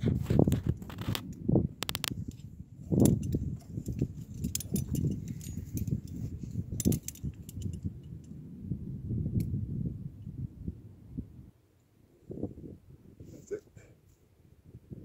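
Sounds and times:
microphone handling noise: 0:00.0 - 0:07.8
wind rumble: 0:00.0 - 0:15.0
climbing hardware clinking: 0:01.8 - 0:08.2.

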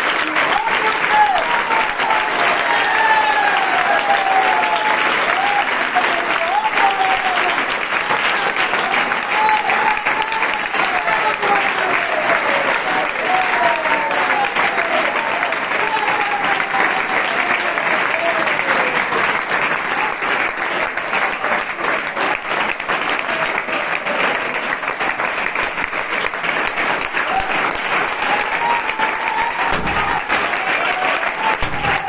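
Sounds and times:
crowd applauding: 0:00.0 - 0:32.0.

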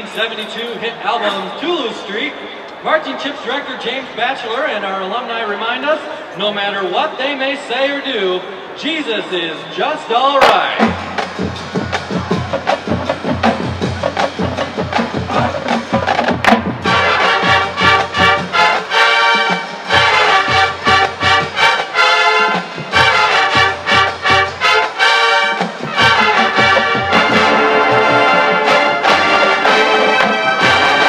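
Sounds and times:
drumline beating: 0:10.4 - 0:31.0
brass section playing chords: 0:10.7 - 0:31.0.

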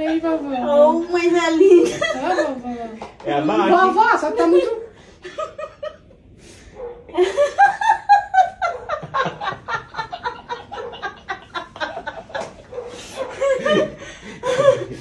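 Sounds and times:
people laughing hard: 0:07.1 - 0:15.0.

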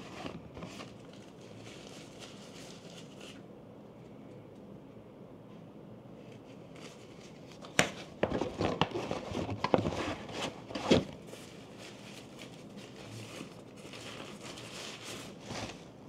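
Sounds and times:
tissue paper crinkling: 0:00.0 - 0:03.4, 0:08.3 - 0:15.9.

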